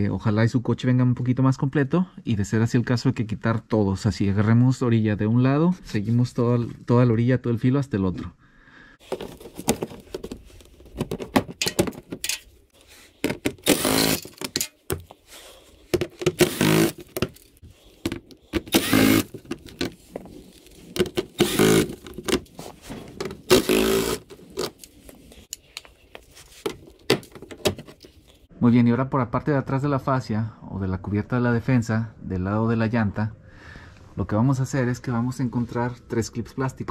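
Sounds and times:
impact driver running: 13.5 - 14.4, 16.2 - 17.4, 18.1 - 19.5, 21.2 - 22.0, 23.5 - 24.3.

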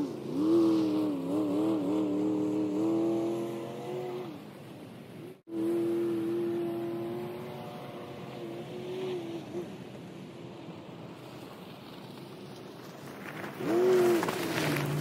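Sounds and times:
truck engine revving: 0.0 - 4.6, 5.4 - 9.8.

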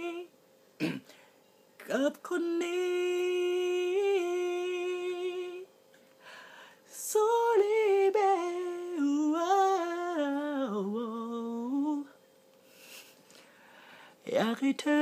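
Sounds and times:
man singing wordless melody: 0.0 - 0.3, 1.8 - 5.7, 6.8 - 12.2, 14.2 - 15.0
short breath: 6.2 - 6.8, 12.6 - 14.2.

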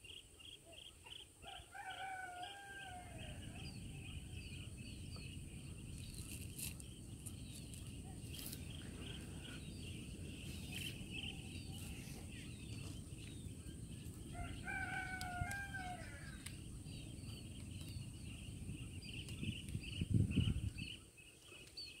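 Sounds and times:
small birds chirping: 0.0 - 22.0
rooster crowing: 1.4 - 3.7, 14.3 - 16.5.

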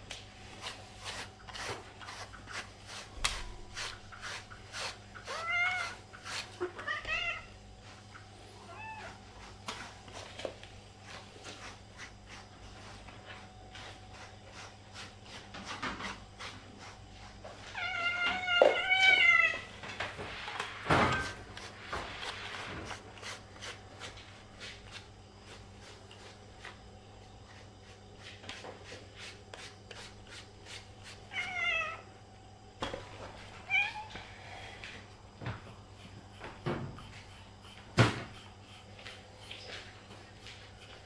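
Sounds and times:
cat meowing: 5.3 - 6.0, 6.6 - 7.5, 8.6 - 9.2, 17.7 - 19.7, 31.3 - 32.0.

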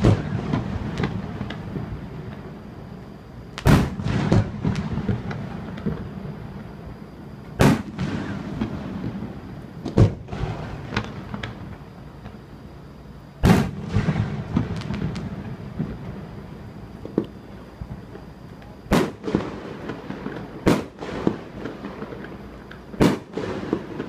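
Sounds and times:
firework booms: 0.0 - 2.6, 3.5 - 12.4, 13.4 - 18.2, 18.9 - 24.0
firework pops and crackles: 0.0 - 2.6, 3.4 - 6.8, 7.4 - 12.5, 13.4 - 24.0.

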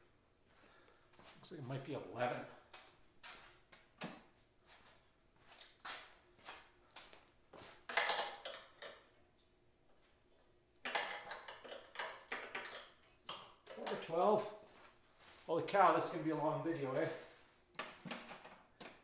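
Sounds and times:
metal wrenches clinking: 10.8 - 14.1.

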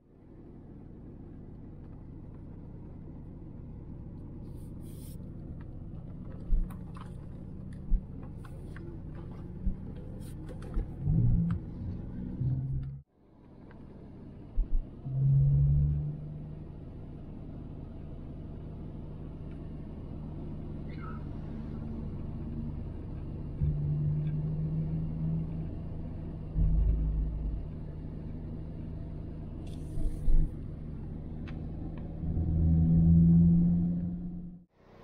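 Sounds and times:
car engine and road noise: 0.0 - 35.0
dull low thump: 14.6 - 14.9, 26.5 - 27.8.

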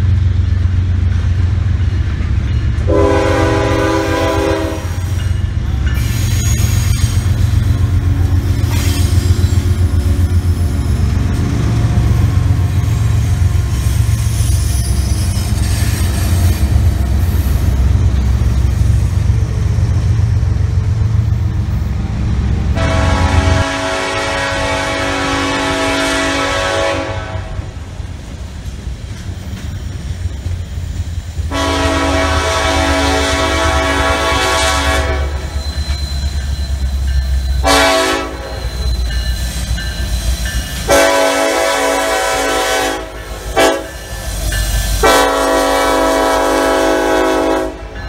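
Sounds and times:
diesel locomotive rumbling: 0.0 - 48.0
locomotive air horn blast: 2.9 - 5.1, 22.8 - 27.7, 31.5 - 35.6, 37.6 - 38.8, 40.9 - 44.0, 45.0 - 48.0.

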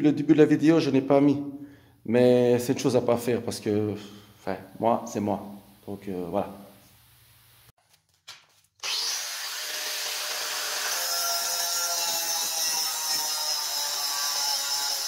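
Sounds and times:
angle grinder cutting steel: 8.8 - 15.0.

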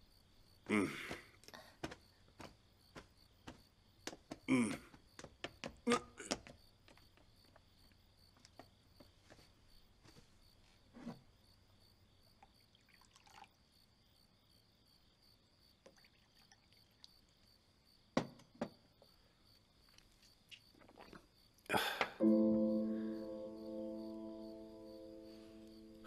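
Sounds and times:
wine trickling into cup: 12.7 - 13.5.

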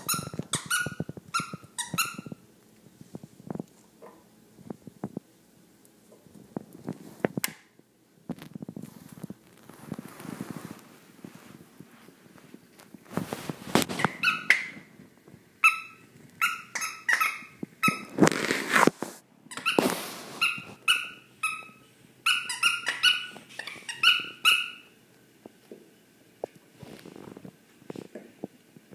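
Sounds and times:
squeaky toy squeaking: 0.0 - 2.4, 13.9 - 14.8, 15.6 - 18.1, 19.5 - 19.8, 20.4 - 24.9
puppy scuffing and chewing: 8.3 - 15.4.

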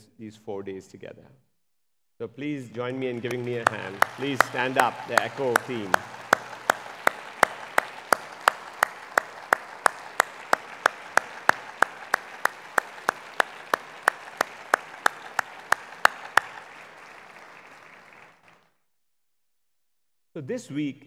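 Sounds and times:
audience applause: 2.8 - 18.7
loud close hand claps: 2.8 - 18.7.

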